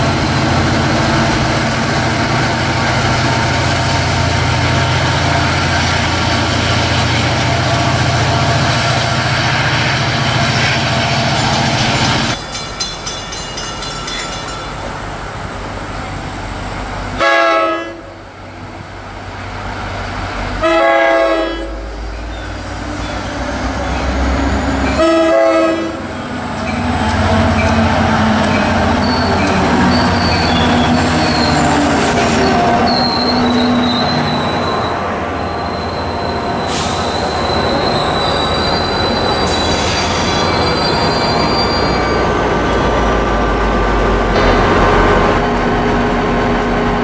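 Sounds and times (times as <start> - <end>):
train rumble: 0.0 - 47.0
train horn blasts: 17.2 - 18.2, 20.6 - 21.8, 24.9 - 26.0.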